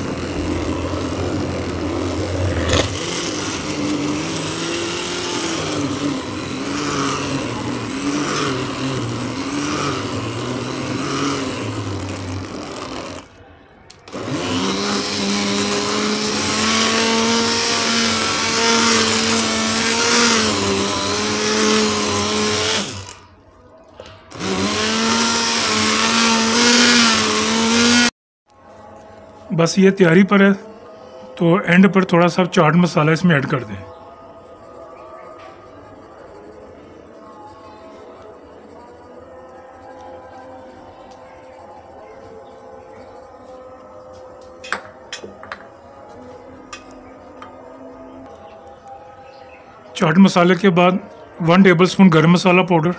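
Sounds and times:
stick blender motor running: 0.0s - 23.3s, 24.0s - 28.1s.

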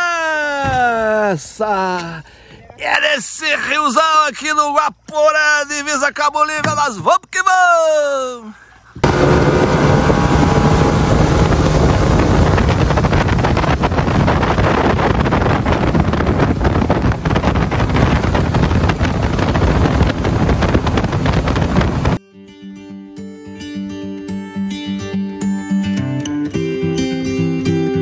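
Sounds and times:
outboard motor running: 9.0s - 22.2s
water rushing past hull: 9.0s - 22.2s
wind buffeting microphone: 9.0s - 22.2s.

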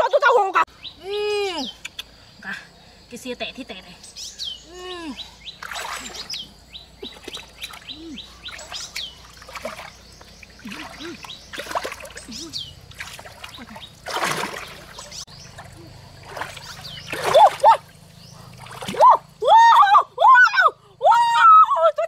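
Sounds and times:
birds chirping: 0.1s - 20.0s
water splashing: 5.6s - 19.5s.

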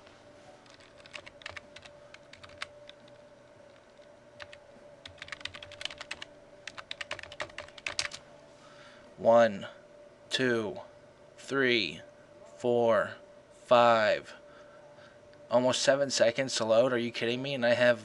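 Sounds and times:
faint steady hum: 0.0s - 18.0s
typing on computer keyboard: 0.6s - 3.1s, 3.9s - 8.2s.

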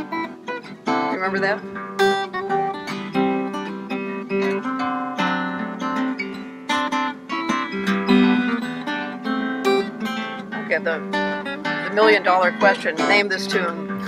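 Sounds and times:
fingerstyle harp guitar: 0.0s - 14.0s.

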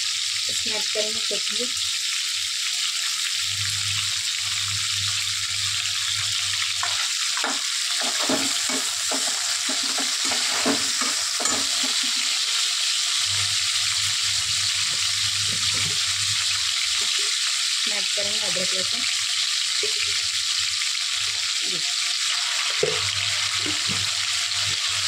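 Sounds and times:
vegetables sizzling in oil: 0.0s - 25.0s
metal spoon scraping pan: 6.8s - 12.5s.

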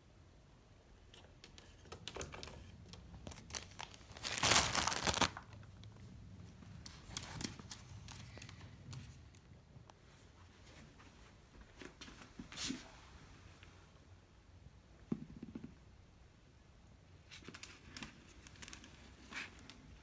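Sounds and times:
plastic bag crinkling: 2.6s - 5.7s.

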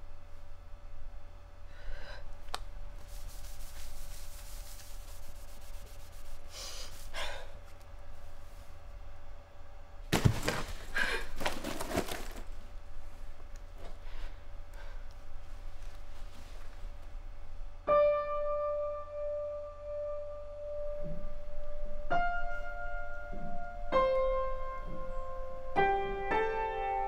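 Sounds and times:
steady low hum: 0.0s - 27.0s
cloth rubbing a hard floor: 3.0s - 7.2s.

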